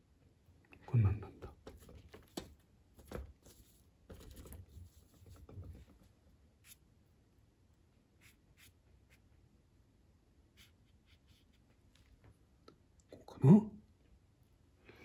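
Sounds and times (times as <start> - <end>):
paintbrush swishing and scratching: 3.4 - 6.0, 10.5 - 12.2.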